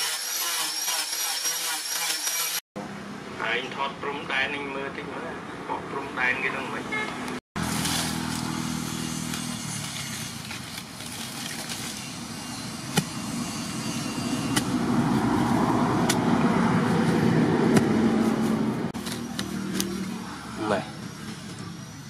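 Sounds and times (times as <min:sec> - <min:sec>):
vehicle engine running: 0:07.6 - 0:21.8
digging blade chopping soil: 0:12.8 - 0:13.5, 0:14.1 - 0:15.0, 0:15.9 - 0:16.4, 0:17.6 - 0:20.0.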